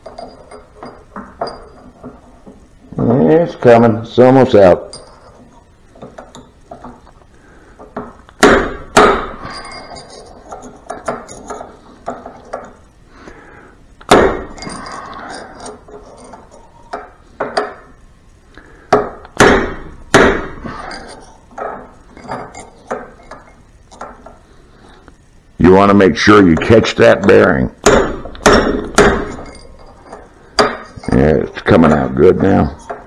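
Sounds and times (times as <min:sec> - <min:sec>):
light metallic taps and clinks: 0:00.0 - 0:02.6, 0:04.8 - 0:07.2, 0:09.4 - 0:12.9, 0:20.8 - 0:24.4, 0:29.3 - 0:33.0
hammer striking steel punch: 0:08.4 - 0:09.4, 0:14.1 - 0:14.6, 0:18.9 - 0:20.6, 0:27.8 - 0:29.6.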